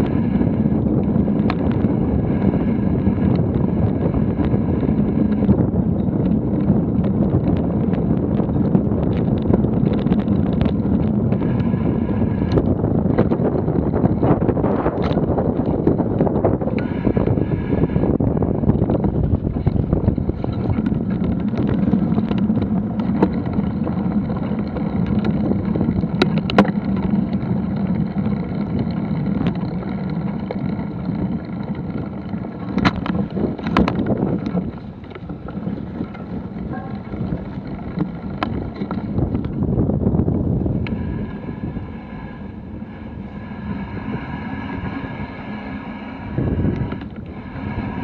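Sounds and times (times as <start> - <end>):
bicycle tyres rumbling on dirt: 0.0 - 48.0
bike knocking and rattling: 0.0 - 48.0
wind on microphone: 0.0 - 48.0.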